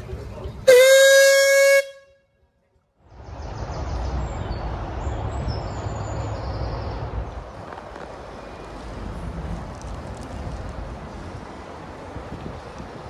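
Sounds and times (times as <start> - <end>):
low outdoor rumble: 0.0 - 13.0
steam whistle blowing: 0.7 - 2.2.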